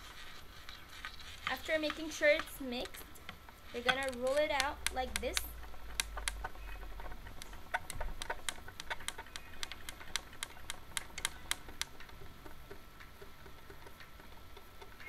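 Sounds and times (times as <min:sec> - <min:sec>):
clicks on hard work surface: 0:01.4 - 0:06.5.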